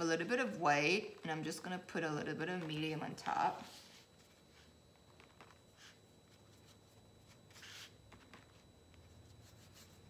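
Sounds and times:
paintbrush rubbing on palette: 5.7 - 8.0, 9.0 - 10.0.

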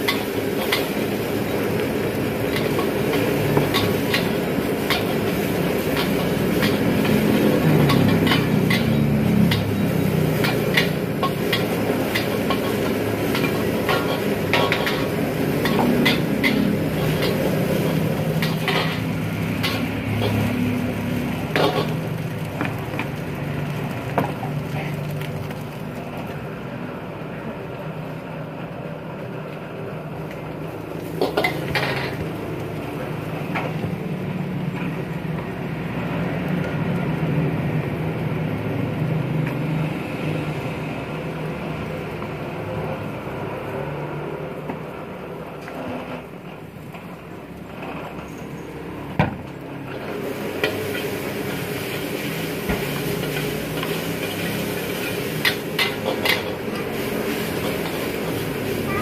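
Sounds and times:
metal ladle scraping a wok: 2.4 - 22.0, 53.0 - 58.7.

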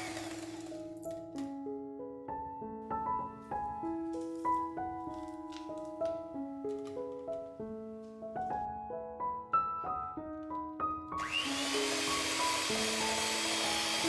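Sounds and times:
electric hand mixer running: 0.0 - 0.9, 11.2 - 14.0
background piano music: 0.0 - 14.0.

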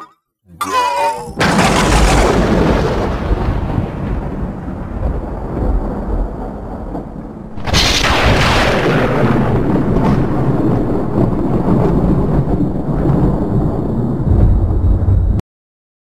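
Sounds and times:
loud boom: 1.4 - 13.6
low rumble: 1.4 - 15.4.

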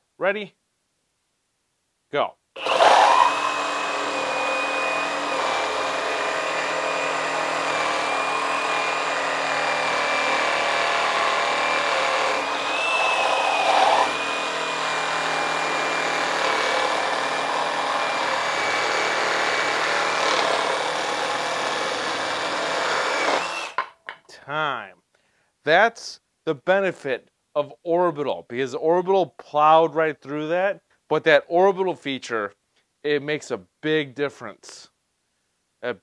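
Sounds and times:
reciprocating saw cutting wood: 2.6 - 23.8.

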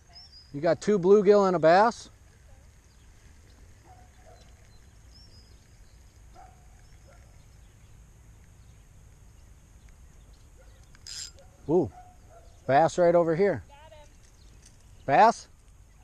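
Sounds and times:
distant animal calls: 10.4 - 12.8.

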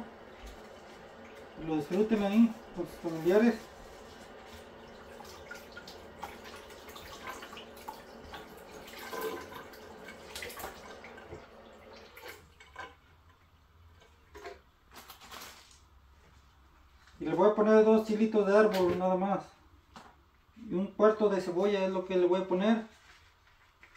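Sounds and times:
faucet water running: 0.0 - 13.0.

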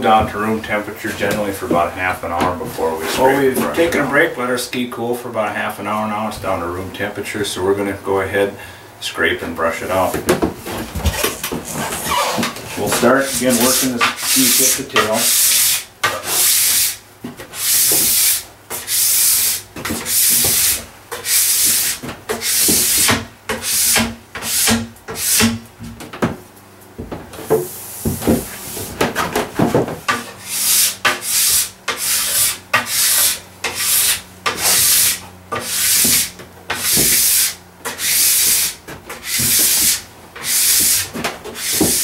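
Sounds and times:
scraper scraping wax off ski: 11.8 - 17.0, 30.5 - 42.0.

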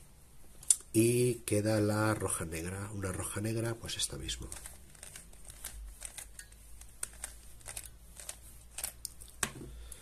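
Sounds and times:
puzzle cube clicks and snaps: 4.5 - 9.5.

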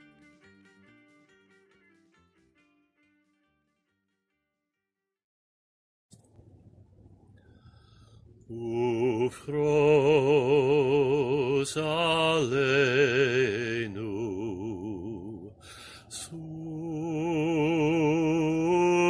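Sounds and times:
man singing a slow chant: 8.5 - 19.0.

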